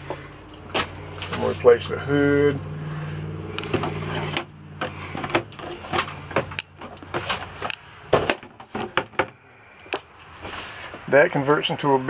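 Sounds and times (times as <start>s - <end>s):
electric motor hum: 0.0s - 6.8s.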